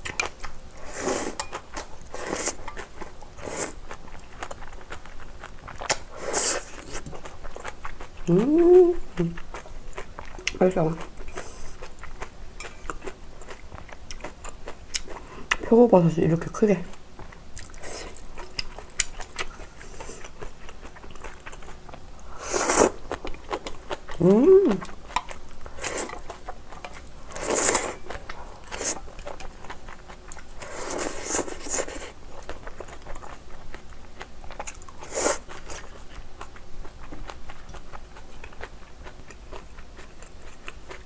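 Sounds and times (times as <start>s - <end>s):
chewing: 0.0s - 15.7s, 16.8s - 41.0s
slurping noodles: 22.3s - 23.0s, 27.3s - 28.0s.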